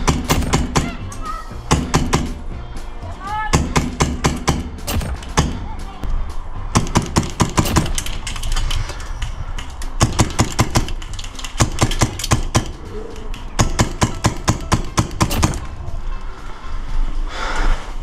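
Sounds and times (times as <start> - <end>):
airsoft guns firing: 0.0 - 1.0, 1.7 - 2.4, 3.5 - 5.6, 6.8 - 8.7, 10.0 - 12.8, 13.6 - 15.7.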